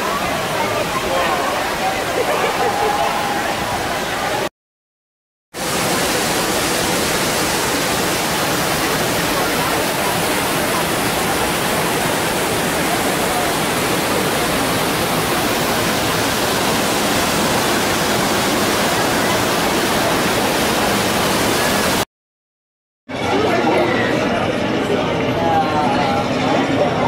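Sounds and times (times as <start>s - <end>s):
waterfall rushing: 0.0s - 4.5s, 5.6s - 22.1s.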